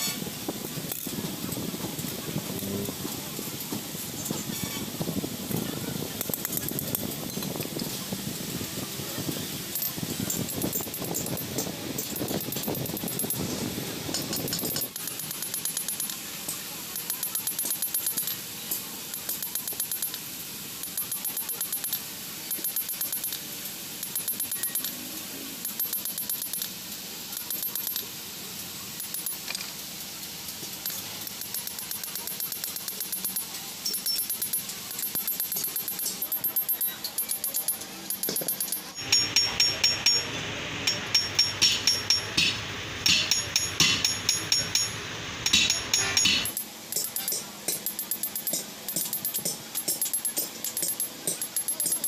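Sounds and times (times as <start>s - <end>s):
hammer striking steel disc: 31.5s - 52.0s.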